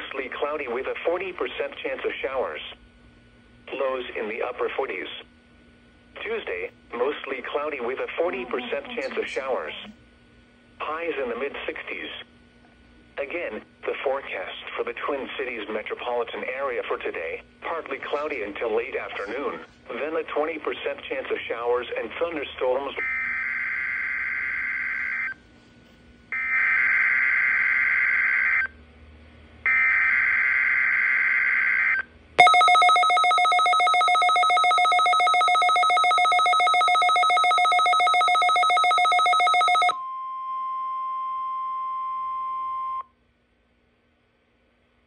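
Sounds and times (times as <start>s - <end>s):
rapidly pulsing ringing alert tone: 32.4s - 40.0s
steady warning tone: 32.4s - 40.1s.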